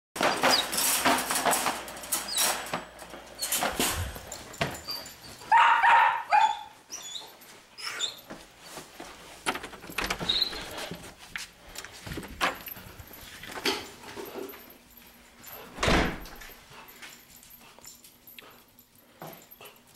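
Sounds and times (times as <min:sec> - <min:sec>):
puppy barking: 0:05.5 - 0:06.8
clicks and knocks: 0:09.4 - 0:10.3.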